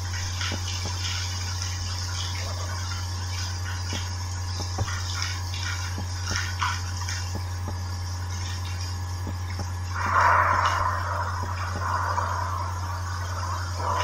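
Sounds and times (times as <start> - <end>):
low hum and hiss: 0.0 - 14.0
sharp crackles and pops: 0.0 - 14.0.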